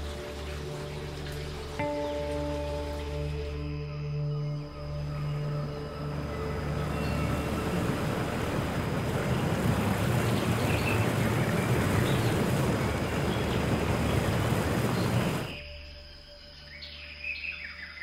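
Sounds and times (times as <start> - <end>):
steady rushing noise: 6.1 - 15.6.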